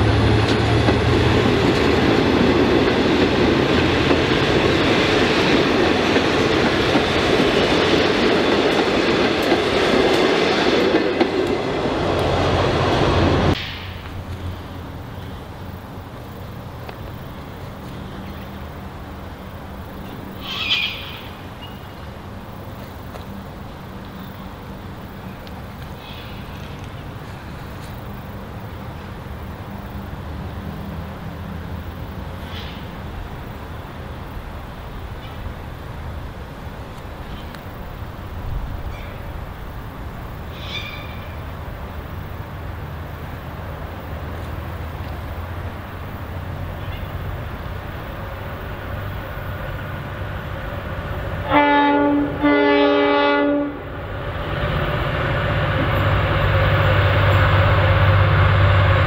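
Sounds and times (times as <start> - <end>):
diesel locomotive low hum: 0.0 - 59.0
high-pitched animal call: 20.4 - 21.3, 40.6 - 41.3
bird chirping: 20.4 - 22.0.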